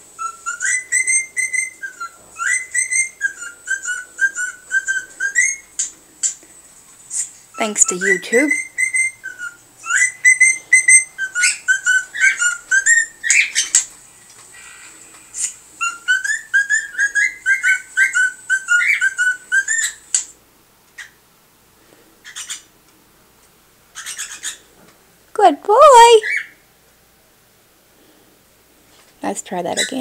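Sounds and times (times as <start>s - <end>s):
cockatiel chirps: 0.2s - 5.9s, 7.5s - 13.9s, 14.6s - 20.3s, 22.2s - 22.7s, 23.9s - 24.7s
cockatiel whistling a tune: 0.2s - 5.9s, 7.6s - 13.9s, 15.4s - 20.3s, 24.0s - 24.6s.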